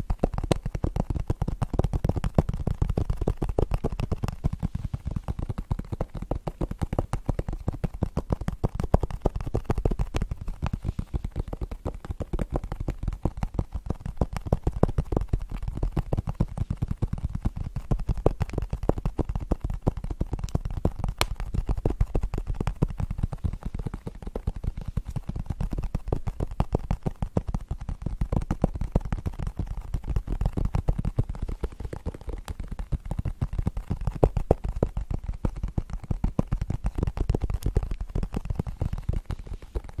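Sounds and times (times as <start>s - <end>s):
fingernails tapping on cardboard: 0.0s - 40.0s.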